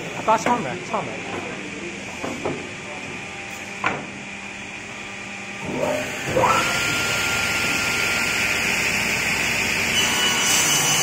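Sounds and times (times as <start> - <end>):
saw motor high whine: 5.4 - 11.0.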